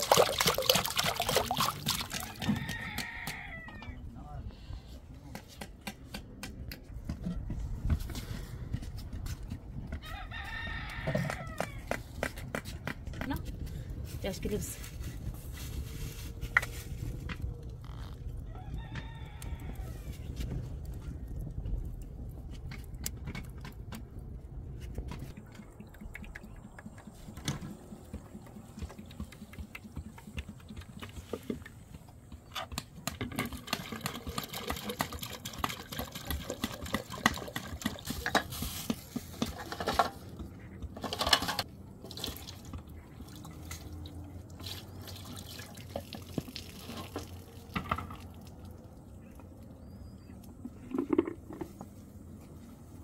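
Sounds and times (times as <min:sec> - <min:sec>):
water splashing and dripping: 0:00.0 - 0:02.8, 0:25.2 - 0:31.7, 0:33.3 - 0:38.5, 0:42.0 - 0:50.0
small knocks and clatter: 0:22.4 - 0:41.7, 0:46.0 - 0:48.4, 0:50.5 - 0:52.0.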